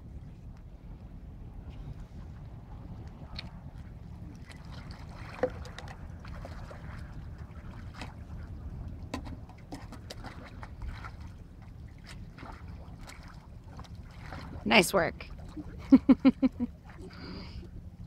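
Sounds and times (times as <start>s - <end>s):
wind on microphone: 0.0s - 18.0s
water splashing and knocking: 4.4s - 17.1s.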